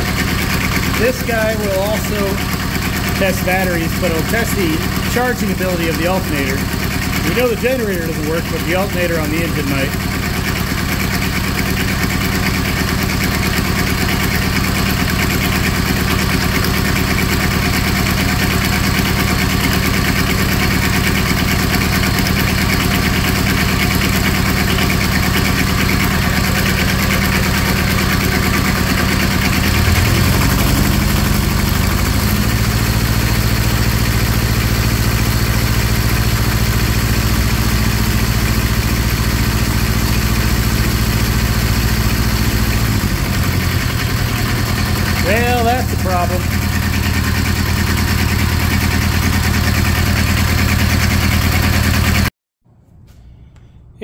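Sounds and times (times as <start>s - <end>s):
small diesel engine running: 0.0s - 52.3s.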